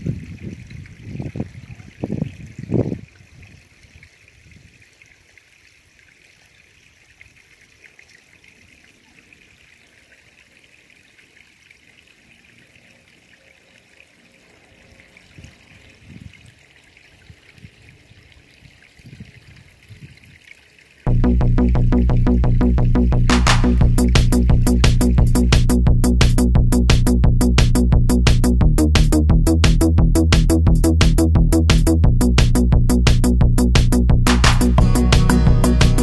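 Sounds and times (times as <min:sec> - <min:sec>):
water trickling: 0:00.0 - 0:26.7
soft low rumbles: 0:21.1 - 0:36.0.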